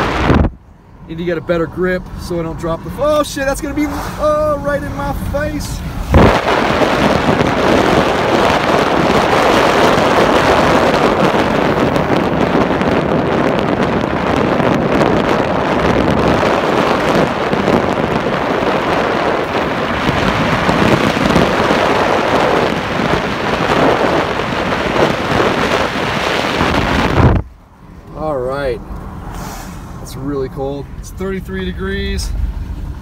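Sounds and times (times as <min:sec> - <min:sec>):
wind buffeting microphone: 0:00.0 - 0:00.6, 0:02.8 - 0:28.1
tyre and road noise: 0:00.0 - 0:33.0.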